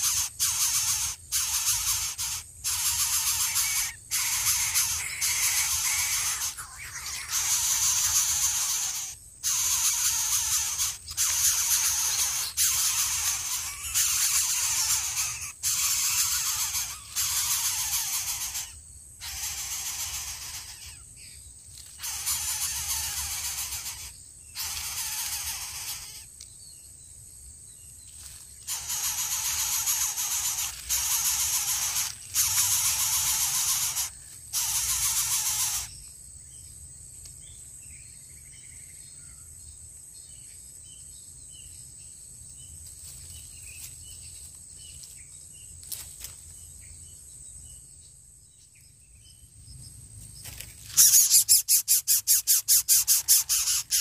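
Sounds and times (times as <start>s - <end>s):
chicks hissing rasps: 0.0s - 21.3s, 21.9s - 26.4s, 28.6s - 36.0s, 50.9s - 54.0s
distant bird chirps: 0.0s - 54.0s.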